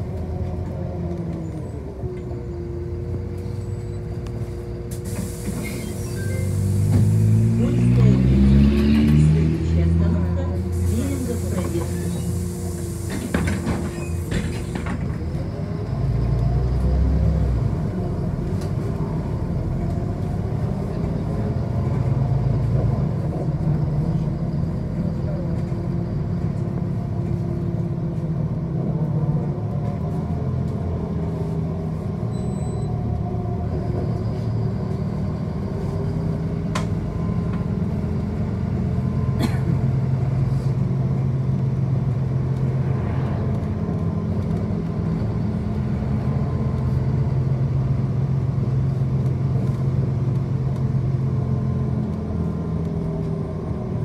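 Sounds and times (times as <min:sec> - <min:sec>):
bus rumbling on road: 0:00.0 - 0:54.0.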